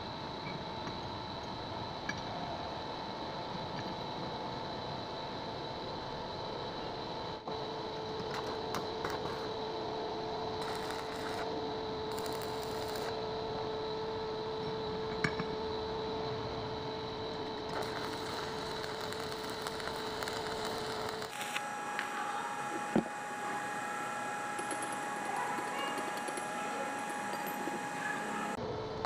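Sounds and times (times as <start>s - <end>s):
steady hum with tones: 0.0s - 29.0s
welding arc crackling hiss: 8.1s - 9.6s, 10.6s - 13.2s, 17.3s - 28.6s.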